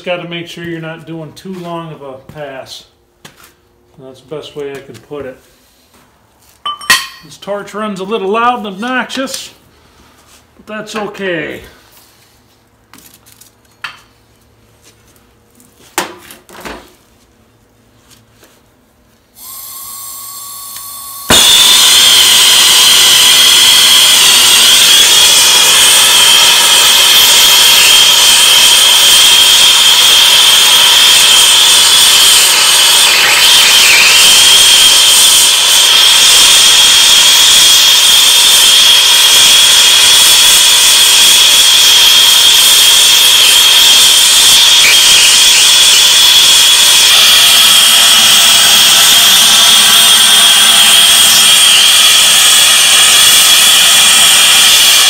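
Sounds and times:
torch flame hissing and whistling: 21.2s - 55.0s.

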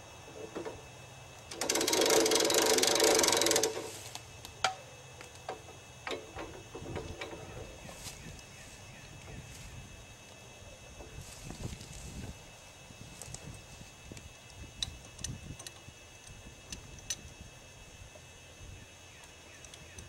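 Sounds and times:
chainsaw engine running: 1.5s - 4.2s.

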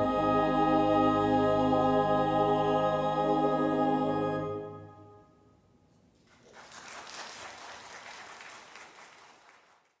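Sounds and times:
choir and organ chord: 0.0s - 5.5s
congregation applauding: 6.2s - 10.0s.

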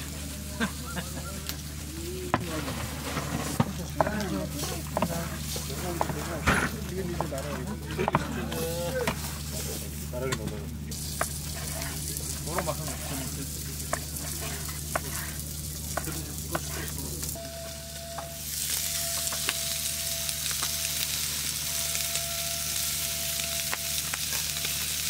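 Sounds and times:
meat sizzling on a grill: 0.0s - 25.0s
knife chopping on wooden board: 8.0s - 9.3s, 13.9s - 15.3s.

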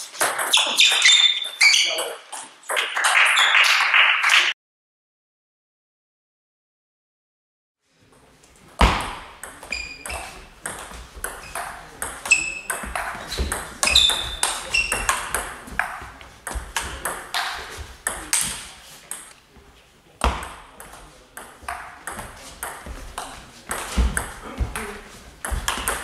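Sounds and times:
table tennis ball hits: 0.1s - 1.5s, 8.8s - 19.3s, 20.2s - 26.0s.

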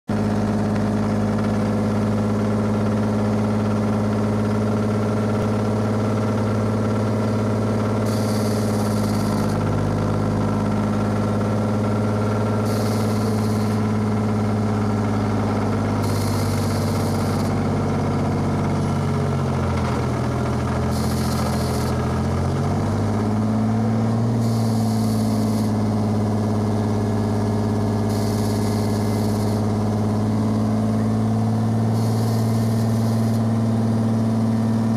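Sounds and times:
diesel engine idling: 0.1s - 34.9s
short hisses: 8.1s - 9.5s, 12.6s - 13.8s, 24.4s - 25.8s, 28.1s - 29.7s.

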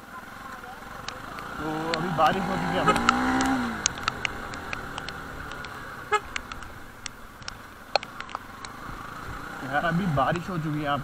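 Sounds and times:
sharp clicks: 0.9s - 9.4s
motorcycle horn stuttering beep: 2.6s - 3.4s, 6.1s - 6.4s.

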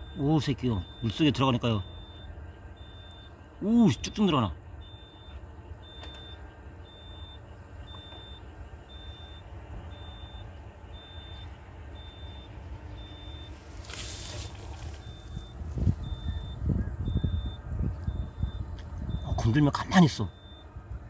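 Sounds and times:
engine running low: 0.0s - 21.0s
reversing alarm beeping: 0.0s - 21.0s
rustling noise: 13.5s - 16.0s.

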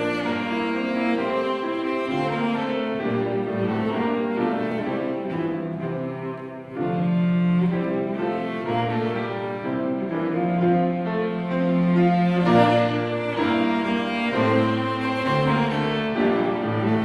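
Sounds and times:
cello bowing long notes: 0.0s - 17.0s
piano playing: 0.0s - 17.0s.

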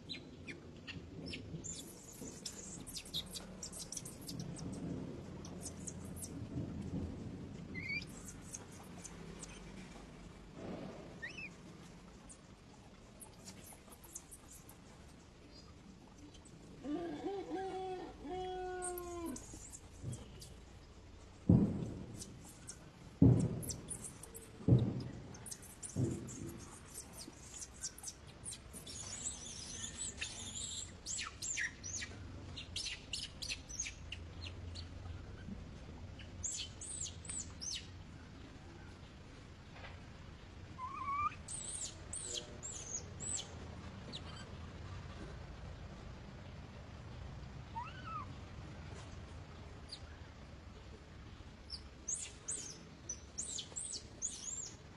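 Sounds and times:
high-pitched monkey squeals: 11.2s - 11.5s, 40.8s - 41.8s, 47.8s - 48.3s
monkey cry: 16.9s - 19.6s, 40.8s - 41.4s, 47.8s - 48.3s
dull thumps: 21.4s - 27.1s.

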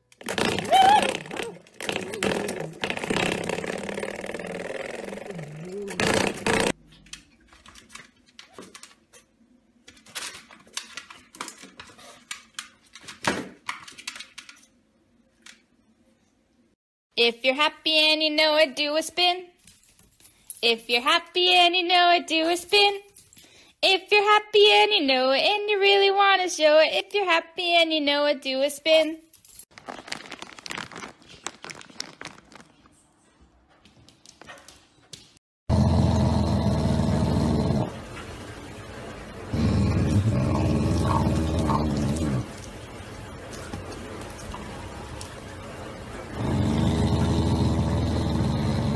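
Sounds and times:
dog snarling growl: 35.7s - 38.0s, 39.5s - 42.6s, 46.3s - 48.9s.

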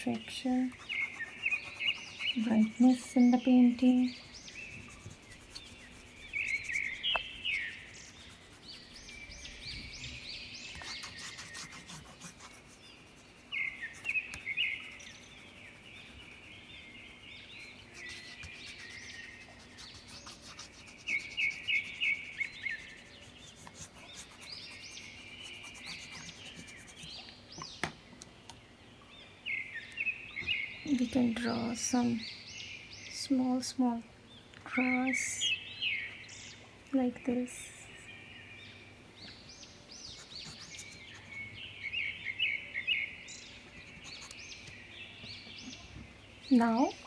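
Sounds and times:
small birds chirping: 0.0s - 47.0s
crayon rubbing on paper: 0.6s - 16.4s, 17.3s - 27.2s, 40.1s - 41.4s, 43.7s - 44.4s.

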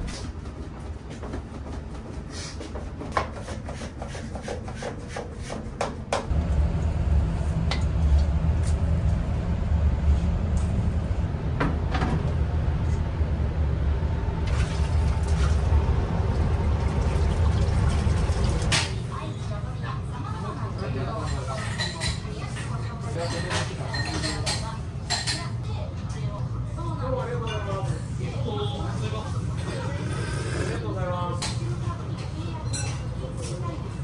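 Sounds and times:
steady low rumble: 6.3s - 18.6s.

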